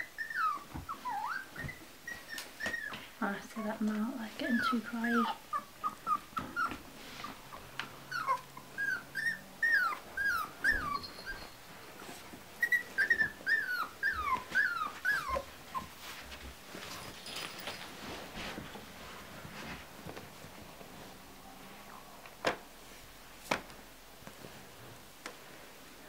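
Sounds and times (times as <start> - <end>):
puppies whimpering: 0.0 - 3.0, 4.5 - 16.0.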